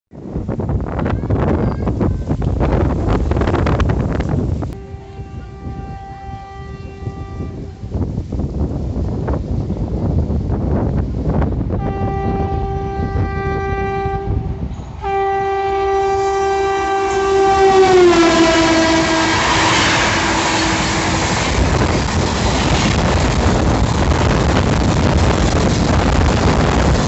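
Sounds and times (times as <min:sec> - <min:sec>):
locomotive horn blasts: 0:04.7 - 0:08.0, 0:11.8 - 0:21.8
train wheels on rails: 0:14.4 - 0:27.0.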